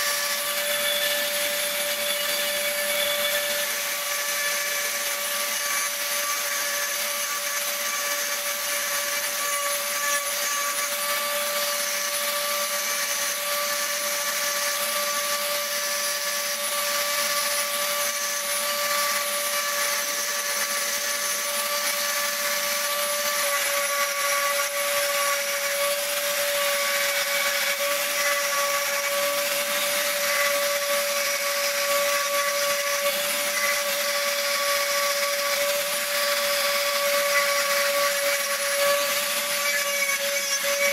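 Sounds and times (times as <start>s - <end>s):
rotary tool grinding stone: 0.0s - 40.9s.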